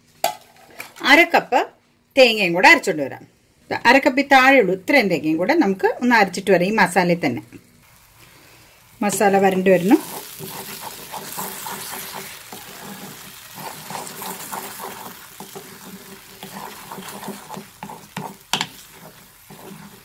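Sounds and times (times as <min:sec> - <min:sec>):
paste sizzling in a pan: 0:07.7 - 0:20.0
spatula scraping a pan: 0:09.2 - 0:20.0.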